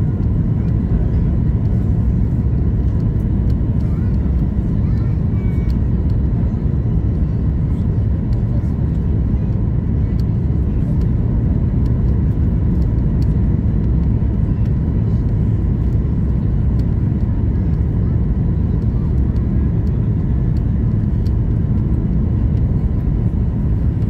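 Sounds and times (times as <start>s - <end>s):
airliner cabin engine rumble: 0.0s - 24.0s.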